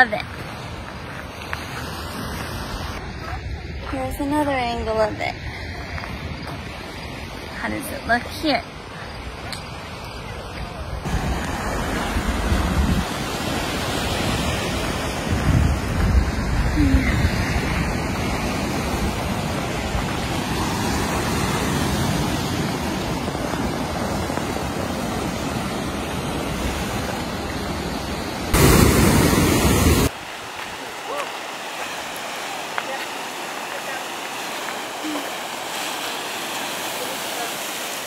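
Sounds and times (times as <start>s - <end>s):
wind rumbling on microphone: 0.3s - 30.8s
surf breaking on rocks: 28.4s - 38.0s.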